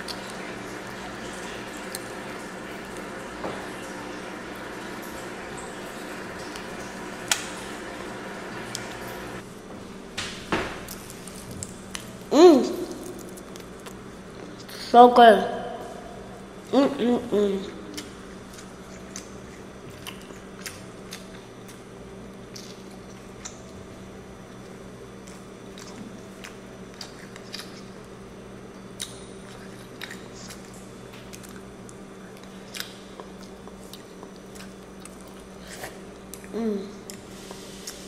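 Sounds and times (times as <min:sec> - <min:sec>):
steady low hum: 0:00.0 - 0:38.0
child chewing corn on the cob: 0:17.8 - 0:38.0.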